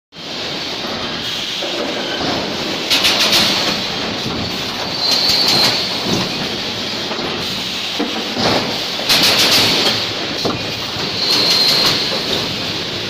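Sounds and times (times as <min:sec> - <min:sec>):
welding machine running: 0:09.0 - 0:13.0.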